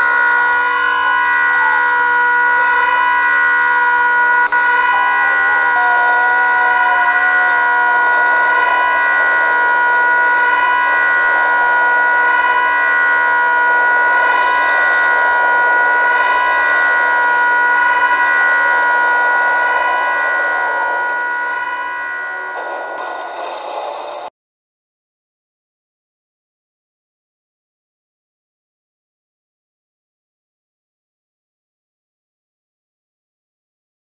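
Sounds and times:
noisy rush: 0.0s - 24.3s
steady alarm tone: 0.0s - 24.3s.

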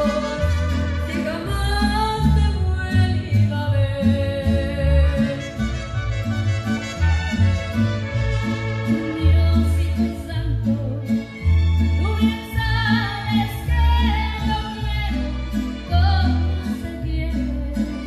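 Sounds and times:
woman singing into microphone: 0.0s - 5.5s, 9.0s - 11.3s, 12.0s - 18.0s.

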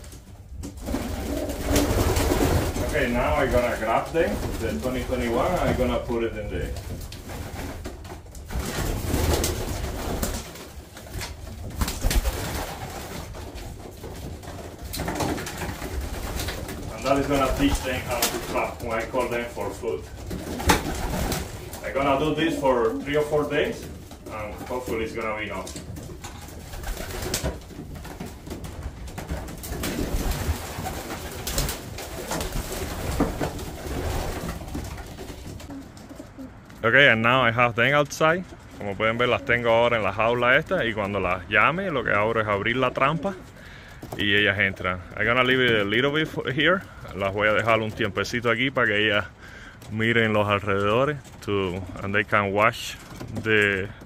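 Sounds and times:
rustling and scuffling: 0.0s - 36.8s
pigeons cooing: 0.8s - 6.2s, 11.5s - 36.8s.

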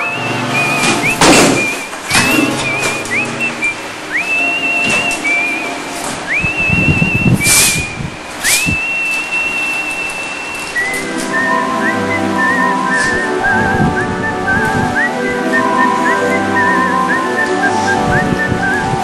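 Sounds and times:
backing music: 0.0s - 19.0s
person whistling a tune: 0.0s - 19.0s
knocks and thumps: 0.8s - 3.2s.

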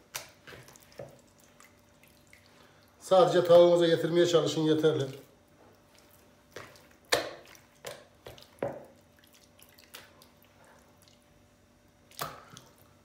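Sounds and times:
sauce dripping: 0.1s - 3.0s, 4.9s - 13.0s
raw chicken squelching: 4.9s - 11.3s.

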